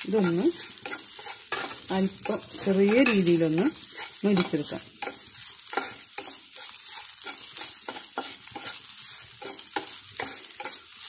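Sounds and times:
soft sizzle of frying: 0.0 - 11.0
wooden spatula scraping frying pan: 0.0 - 11.0.

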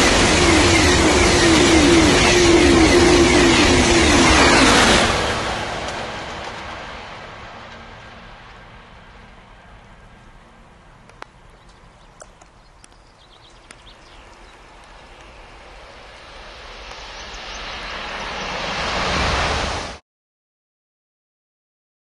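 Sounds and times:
train rushing past: 0.0 - 20.0
faint clicks: 11.0 - 15.3.

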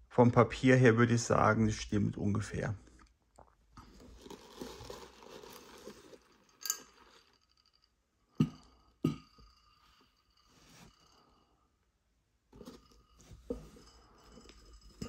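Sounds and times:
tissue paper rustling and crinkling: 3.9 - 7.2.

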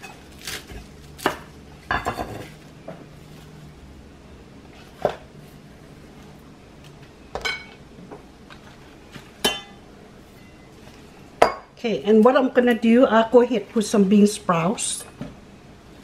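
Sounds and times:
kitchenware clinking: 1.9 - 2.6, 7.4 - 7.8, 9.4 - 9.8, 11.4 - 11.7.

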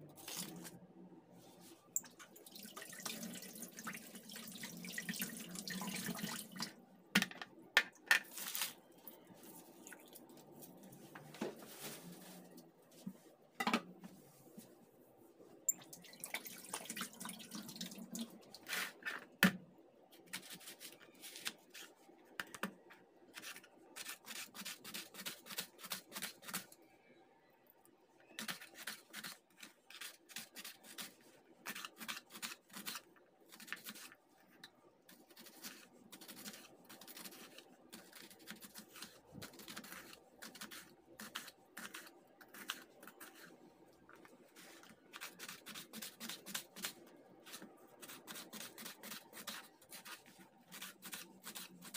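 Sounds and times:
knife slicing onion: 20.2 - 21.9, 23.3 - 26.7, 28.4 - 34.2, 35.1 - 43.5, 44.8 - 51.9.

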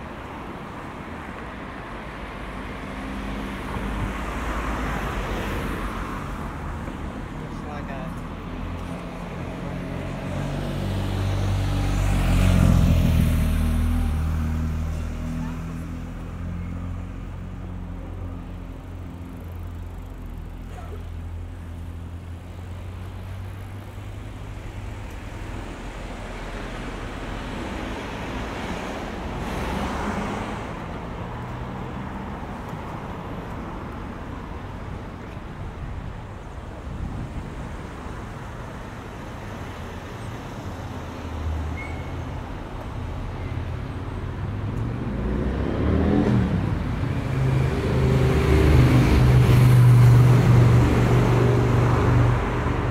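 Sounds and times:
car passing: 2.2 - 52.9
vehicle approaching: 2.6 - 35.3, 42.9 - 52.9
vehicle engine humming: 6.3 - 45.6.

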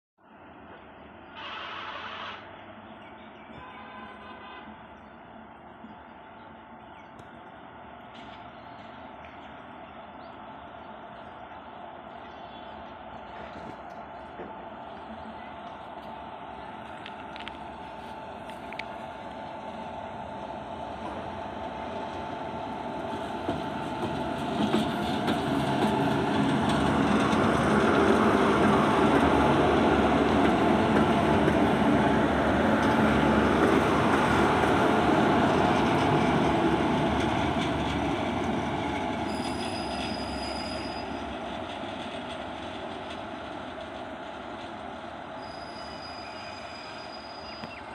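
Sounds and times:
electric locomotive hum: 0.3 - 47.9
wheels clattering on rails: 23.2 - 46.3
high-pitched squeals: 39.2 - 41.2, 45.4 - 47.8.

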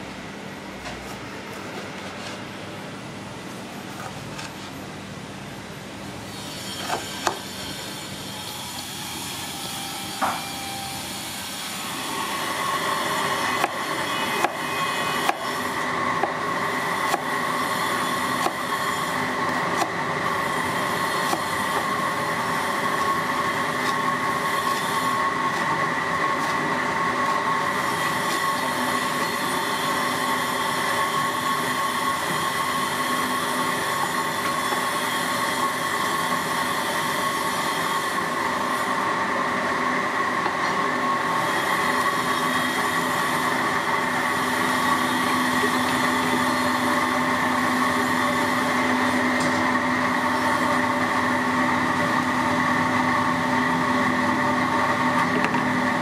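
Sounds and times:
high-pitched mechanical whine: 2.5 - 56.0
cleaver chopping on cutting board: 6.8 - 7.4, 13.5 - 16.5, 17.1 - 17.4, 18.2 - 18.8, 19.5 - 20.0, 21.2 - 22.0, 24.7 - 27.4.

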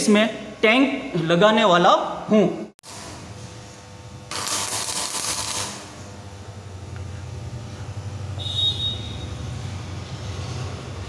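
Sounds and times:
welding arc crackling: 2.8 - 8.8.

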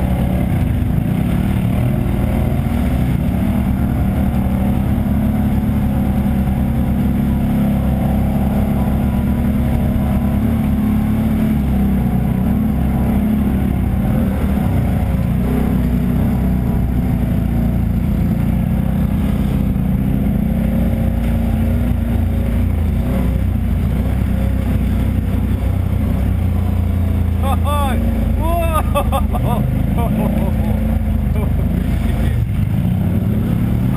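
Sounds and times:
atv engine running: 0.0 - 33.9.

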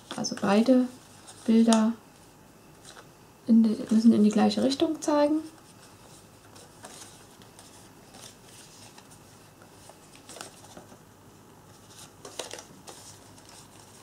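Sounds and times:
paper crackling: 5.4 - 11.0, 11.7 - 14.0
paper rustling: 5.4 - 11.0, 11.7 - 14.0.

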